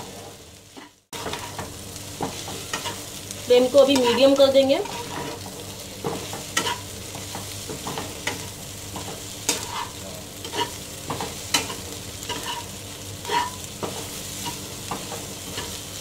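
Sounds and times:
frying oil sizzling: 0.0s - 16.0s
metal spatula scraping a wok: 3.9s - 5.6s, 6.2s - 6.9s, 7.8s - 15.8s.

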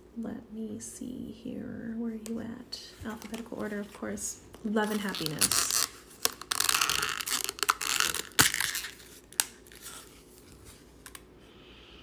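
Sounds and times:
plastic packaging crinkling: 3.1s - 11.2s.

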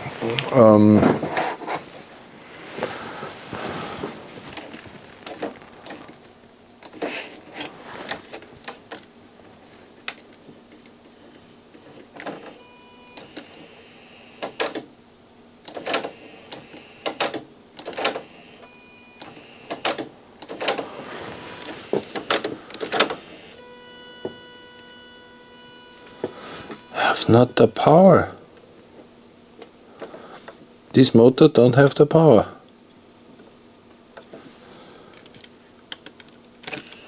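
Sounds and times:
small motor whine: 12.5s - 14.5s, 20.8s - 28.1s.

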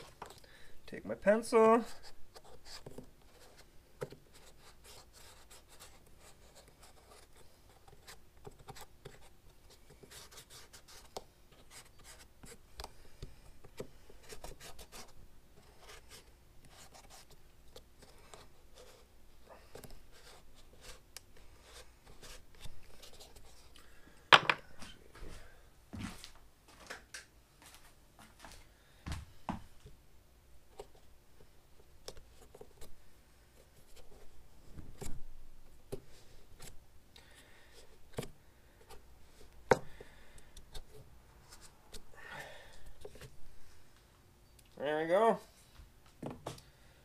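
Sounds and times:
pencil scratching on foam: 1.8s - 12.6s, 13.8s - 19.1s, 19.7s - 21.0s.

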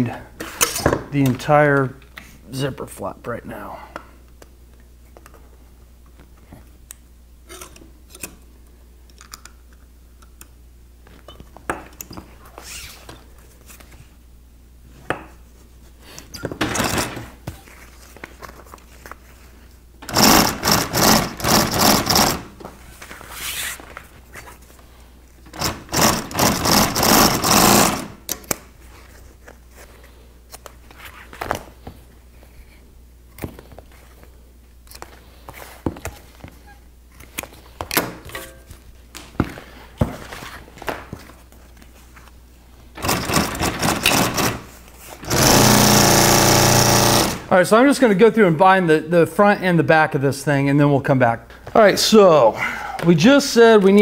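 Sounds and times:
sewing machine stitching: 20.0s - 22.5s, 25.5s - 28.2s, 43.0s - 44.6s, 45.2s - 47.5s.

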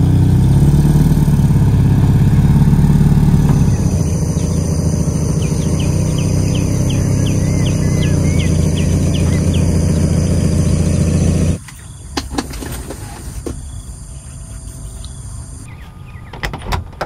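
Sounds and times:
car engine idling: 0.0s - 11.6s
bird whistling: 3.6s - 11.4s.

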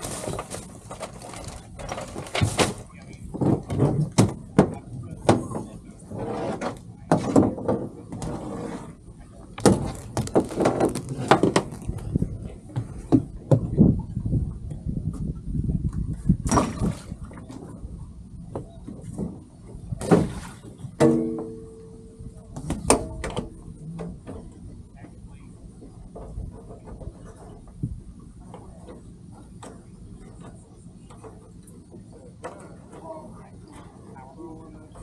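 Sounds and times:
footsteps on boat deck: 9.6s - 13.9s.

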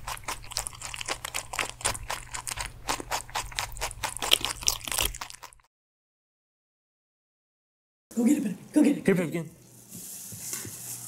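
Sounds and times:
rabbit chewing crunchy food: 0.0s - 5.7s.

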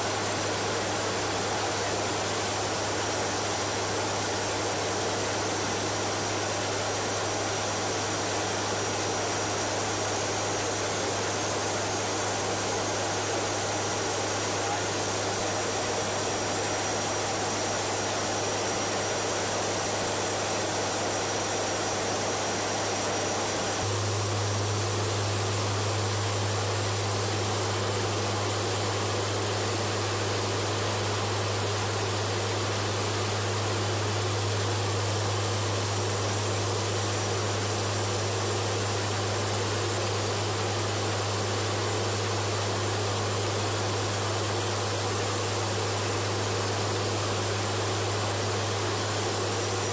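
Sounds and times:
airflow hiss: 0.0s - 49.9s
turboprop engines droning: 21.9s - 38.2s.

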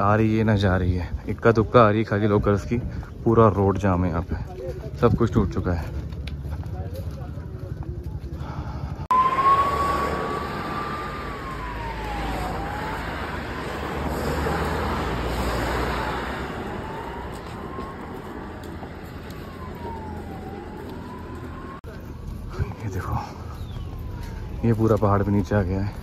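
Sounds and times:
road traffic noise: 2.8s - 26.0s
siren wailing: 9.1s - 21.9s.

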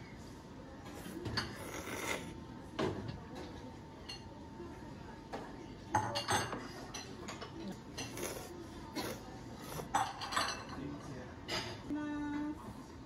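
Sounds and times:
spoon and chopsticks clinking bowl: 9.9s - 10.9s.

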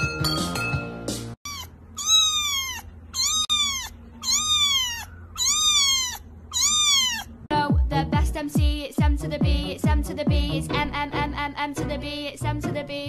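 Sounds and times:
kitten mewing: 1.4s - 7.5s.

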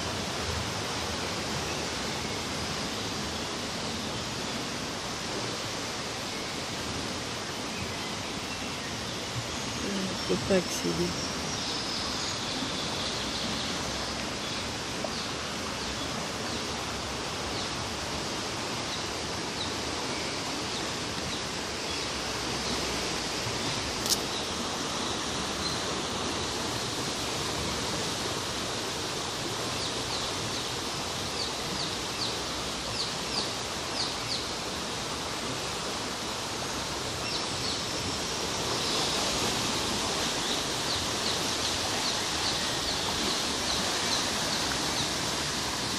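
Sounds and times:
water rushing: 0.0s - 45.9s
sharp click: 24.0s - 24.3s.

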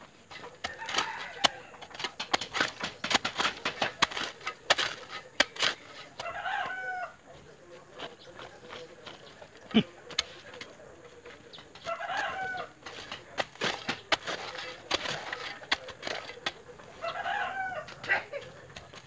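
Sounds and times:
digging tool striking ground: 0.2s - 6.8s, 7.9s - 17.2s
rooster crowing: 0.7s - 1.8s, 6.2s - 7.2s, 11.9s - 12.7s, 17.0s - 18.0s.

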